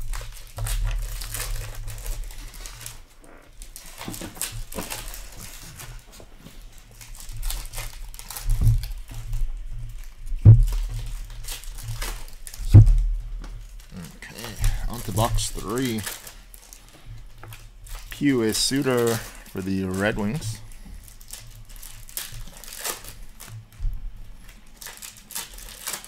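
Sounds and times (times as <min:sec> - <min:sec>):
cards riffling and flicking: 0:00.0 - 0:23.8, 0:24.4 - 0:26.0
heavy thumps: 0:08.5 - 0:15.8.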